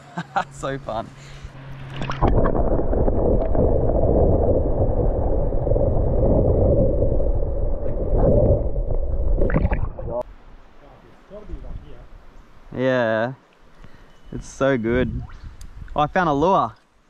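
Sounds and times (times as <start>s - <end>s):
muffled underwater creek rush: 1.6s - 10.3s.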